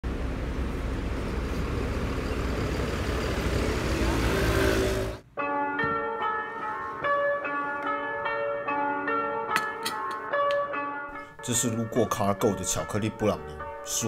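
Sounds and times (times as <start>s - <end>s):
road traffic passing: 0.0s - 5.3s.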